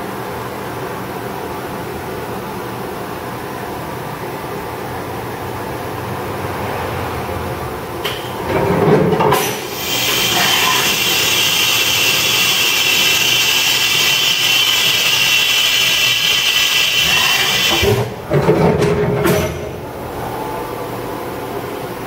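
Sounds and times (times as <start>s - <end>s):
machining center hissing whir: 0.0s - 18.3s, 19.3s - 22.0s.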